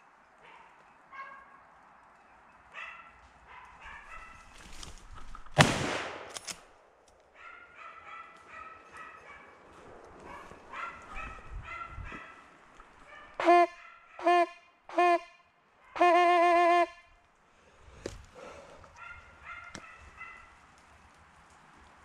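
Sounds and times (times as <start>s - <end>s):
loud gunshot echoing: 5.6s - 6.4s
hounds baying: 7.4s - 14.3s.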